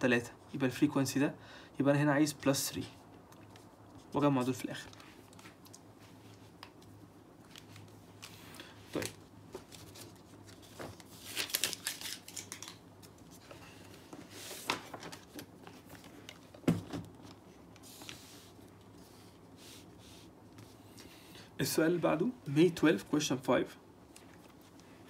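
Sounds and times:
paper pages rustling: 0:03.4 - 0:20.8.

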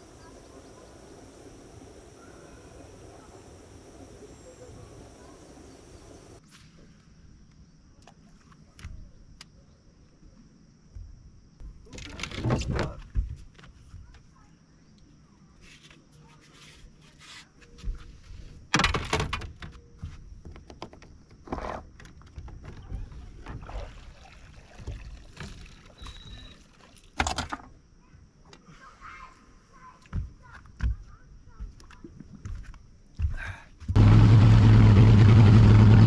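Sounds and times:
fishing gear clunking and rattling: 0:11.8 - 0:13.0, 0:18.7 - 0:23.8, 0:24.7 - 0:27.8.

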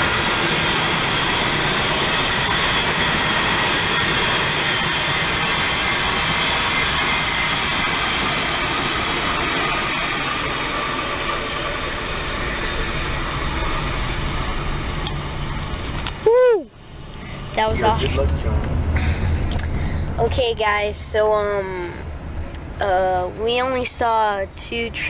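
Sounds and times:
diesel locomotive passing: 0:00.0 - 0:16.0, 0:16.8 - 0:25.0
train wheels rumbling on rail: 0:17.7 - 0:25.0.

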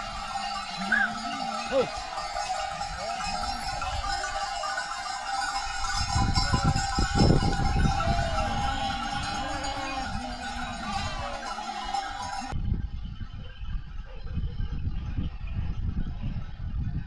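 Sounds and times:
goats and sheep bleating: 0:00.0 - 0:12.6.

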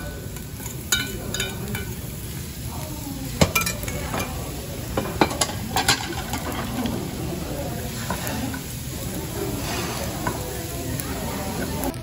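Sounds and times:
steady sizzle: 0:00.0 - 0:12.0
spoon clinking against pot: 0:00.3 - 0:02.0, 0:03.4 - 0:04.4, 0:05.2 - 0:06.6.

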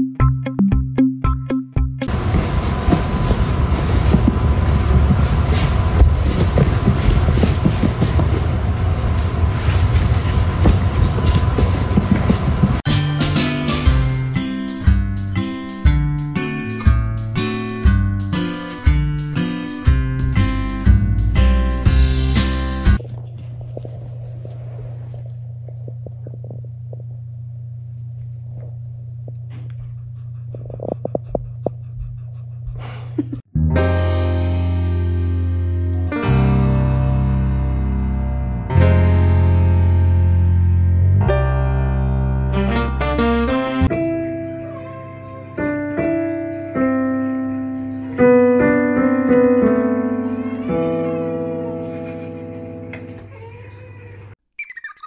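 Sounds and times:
jingly music: 0:00.0 - 0:02.1, 0:12.9 - 0:23.0
steady low hum: 0:23.0 - 0:33.4
slow piano notes and chords: 0:33.6 - 0:53.3.

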